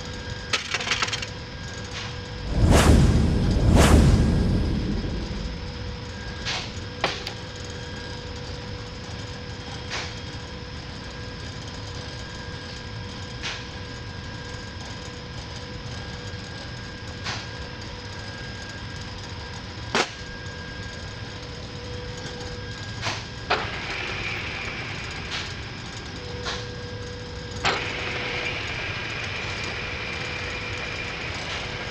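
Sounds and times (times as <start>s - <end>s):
machine hum: 0.0s - 9.0s.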